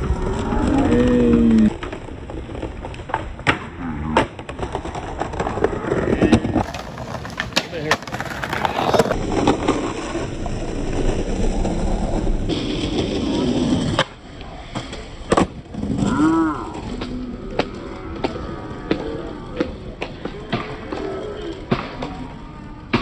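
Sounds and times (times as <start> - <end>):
skateboard wheels rumbling on bricks: 0.0 - 23.0
skateboard clacking on stone: 0.8 - 10.2.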